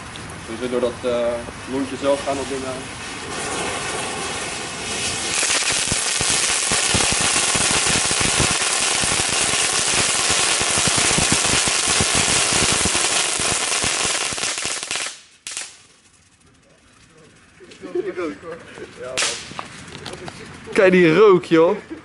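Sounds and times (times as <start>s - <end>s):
ground firework hissing and crackling: 0.5s - 17.8s, 19.0s - 20.3s.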